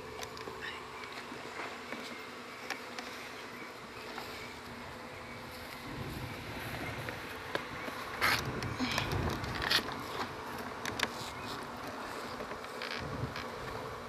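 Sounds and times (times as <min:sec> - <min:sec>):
faint buzzing hum: 0:00.0 - 0:14.0
wind rumble: 0:05.8 - 0:09.9.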